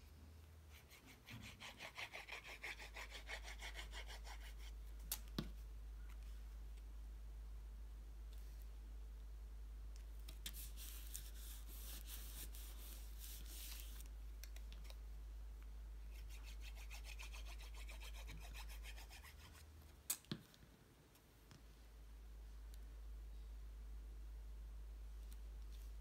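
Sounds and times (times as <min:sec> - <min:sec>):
hands rubbing paper: 0:10.3 - 0:14.1.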